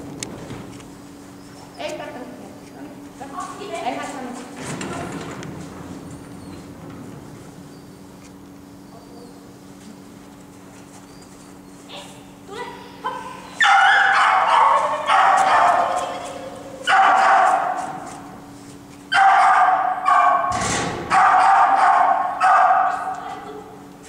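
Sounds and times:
small dog barking: 13.1s - 17.9s, 19.1s - 20.5s, 21.1s - 23.2s.

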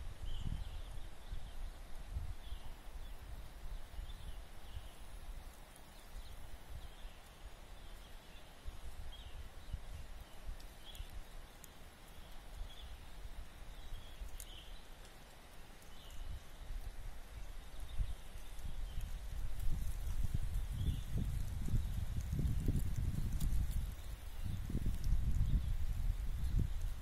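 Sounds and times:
low rumble on microphone: 16.1s - 27.0s.

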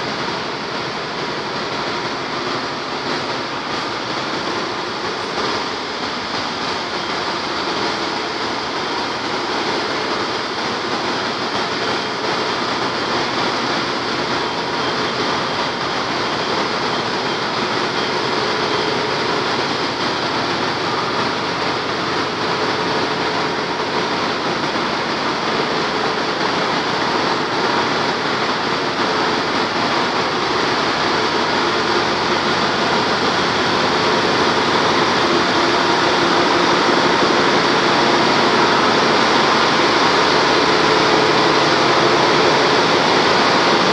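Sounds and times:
engine room machinery running: 0.0s - 43.9s.

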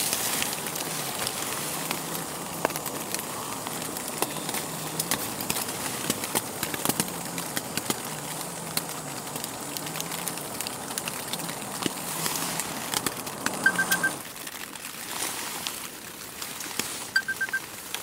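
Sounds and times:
camping stove burning with hiss: 0.0s - 18.0s
quick high electronic beeps: 13.6s - 14.2s, 17.2s - 17.6s.

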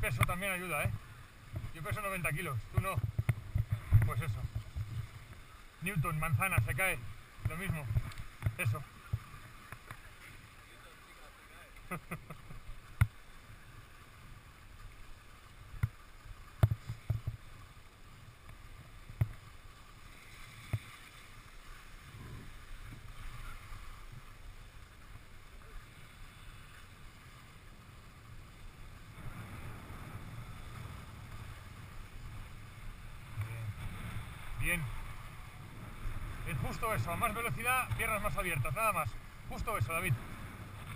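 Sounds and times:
wind on microphone: 0.0s - 9.8s, 22.0s - 24.3s
skis scraping on snow: 13.4s - 40.9s.

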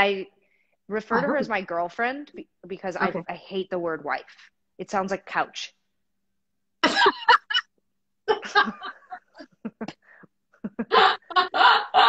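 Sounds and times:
women laughing: 6.8s - 7.7s, 8.3s - 12.0s.

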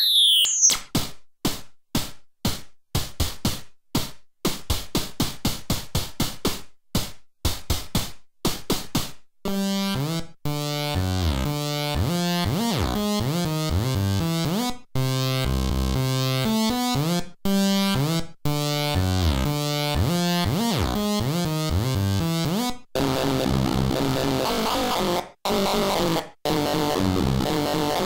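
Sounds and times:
chiptune synthesizer phrase: 0.0s - 0.8s.

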